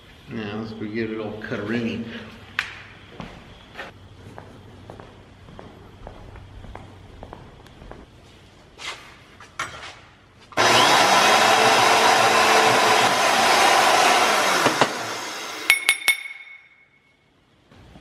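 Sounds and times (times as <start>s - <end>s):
band saw cutting metal: 10.6s - 15.8s
ringing metallic clinks: 15.7s - 17.2s.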